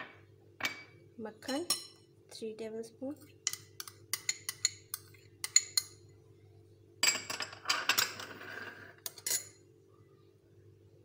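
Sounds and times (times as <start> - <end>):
metal spoon clinking on glass bowl: 3.5 - 6.0, 9.0 - 9.6.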